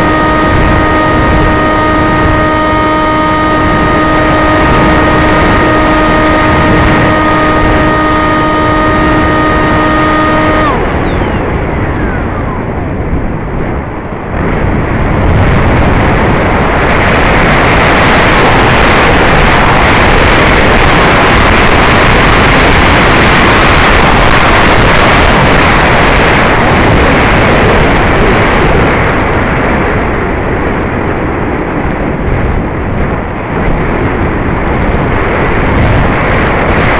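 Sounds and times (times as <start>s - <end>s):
electric motor whining: 0.0s - 13.6s
wind rushing past glider: 0.0s - 36.9s.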